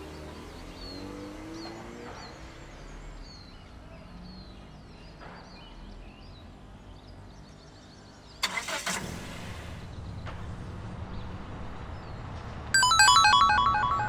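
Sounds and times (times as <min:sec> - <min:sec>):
birds chirping: 0:00.0 - 0:08.9
vehicle engine hum: 0:00.0 - 0:14.0.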